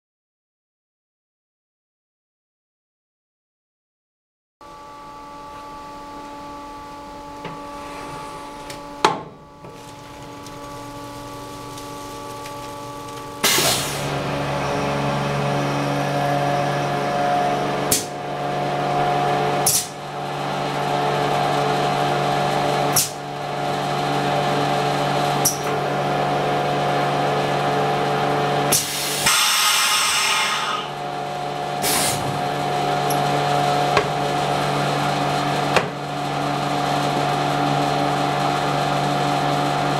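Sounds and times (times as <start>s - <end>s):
low hum: 4.6s - 24.5s
machine motor running: 4.6s - 39.9s
hiss: 13.4s - 14.1s, 28.7s - 31.0s, 31.8s - 32.3s.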